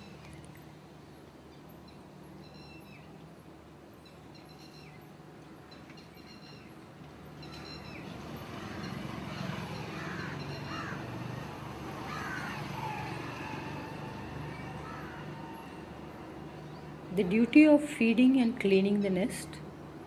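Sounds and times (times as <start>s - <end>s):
low traffic rumble: 0.0s - 20.0s
wild birds calling: 7.4s - 15.8s.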